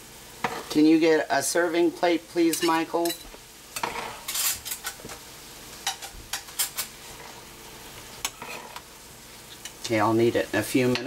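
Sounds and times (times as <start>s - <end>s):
faint frying sizzle: 0.0s - 11.0s
fork and spoon scraping pan: 3.8s - 5.2s, 5.8s - 7.4s, 8.2s - 8.9s.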